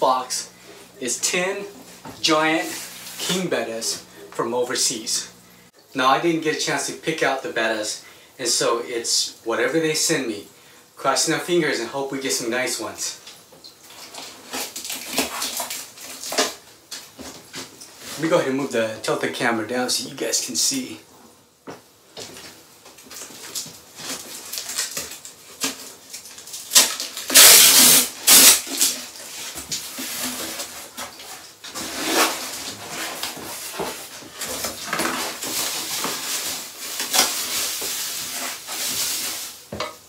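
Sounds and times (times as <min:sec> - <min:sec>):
foil liner crinkling: 0:13.8 - 0:18.3, 0:22.3 - 0:39.8
knife slitting packing tape: 0:14.0 - 0:16.6, 0:23.2 - 0:31.1, 0:31.8 - 0:33.4.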